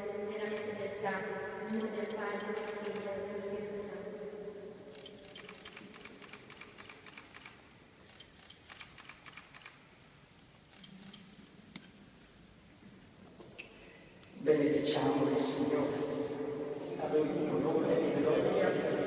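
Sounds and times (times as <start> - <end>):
hush of a large church: 0.0 - 19.0
faint camera shutter clicks: 4.9 - 9.8.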